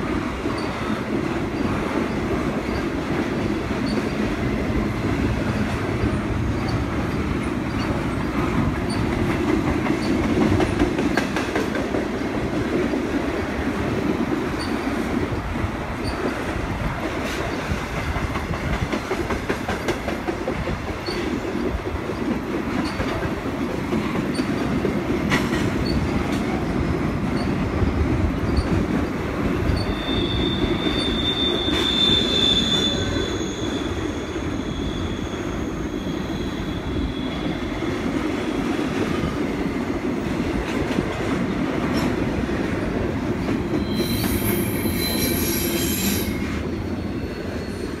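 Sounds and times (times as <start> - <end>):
freight train wheels rumbling: 0.0 - 48.0
light rail clicks: 5.5 - 12.1, 14.6 - 26.6
high wheel squeal: 29.7 - 38.0, 43.7 - 48.0.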